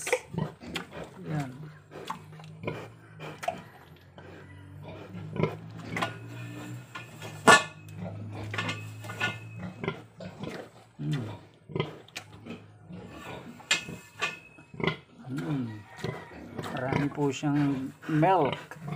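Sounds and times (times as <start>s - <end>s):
sharp metal clanks and knocks: 6.9s - 9.8s, 13.6s - 14.7s
sow grunting: 14.8s - 18.9s.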